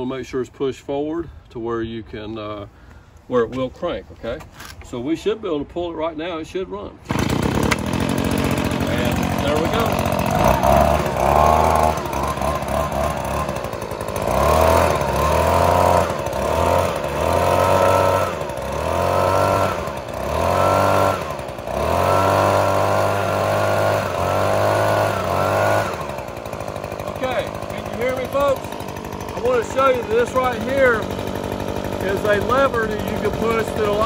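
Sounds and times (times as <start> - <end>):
leaf blower engine revving: 7.1 - 34.0.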